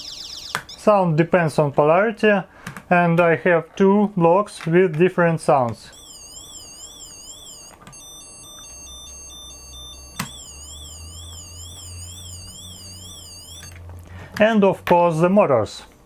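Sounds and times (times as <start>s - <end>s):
electronic siren warbling: 0.0s - 0.8s, 6.0s - 13.8s
stepped beeping: 6.0s - 13.8s.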